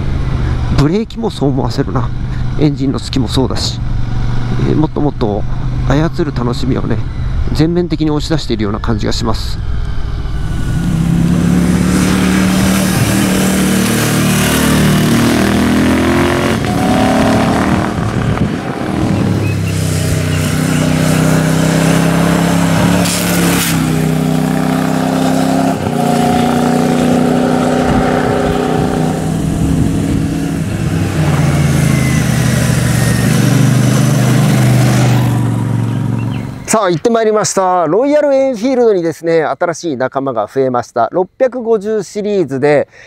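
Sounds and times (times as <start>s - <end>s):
motorcycle engine revving through gears: 9.6s - 36.7s.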